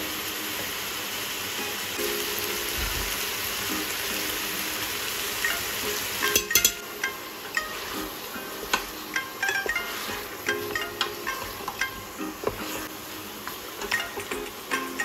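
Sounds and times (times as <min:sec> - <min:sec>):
meat and onions sizzling: 0:00.0 - 0:15.0
metal spoon clicking on pot: 0:06.3 - 0:06.8
wooden spoon scraping pot: 0:08.6 - 0:11.8.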